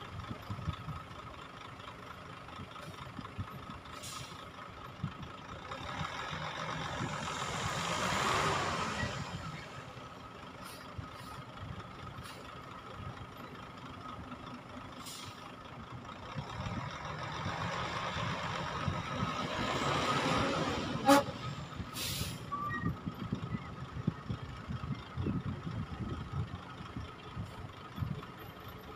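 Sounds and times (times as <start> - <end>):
diesel truck engine running: 0.0 - 28.9
air brake hiss: 4.0 - 4.4, 15.0 - 15.5, 21.9 - 22.5.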